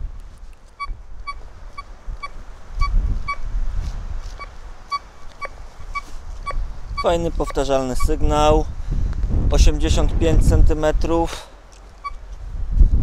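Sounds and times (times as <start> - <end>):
metal detector short beeps: 0.8 - 3.4, 12.0 - 12.2.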